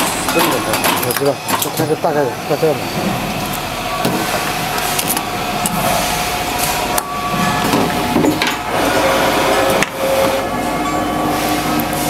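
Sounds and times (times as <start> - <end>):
sharp clicks and knocks: 0.0 - 1.9
machine humming: 0.0 - 12.0
workshop noise: 0.0 - 12.0.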